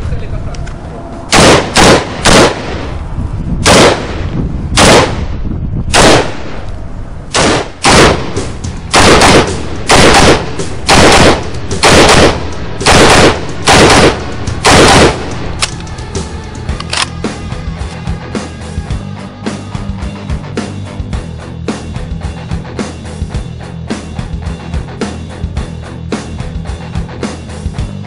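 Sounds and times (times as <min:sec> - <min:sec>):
pistol shots with echo: 0:01.3 - 0:02.9, 0:03.6 - 0:04.2, 0:04.8 - 0:05.3, 0:05.9 - 0:06.6, 0:07.3 - 0:15.4.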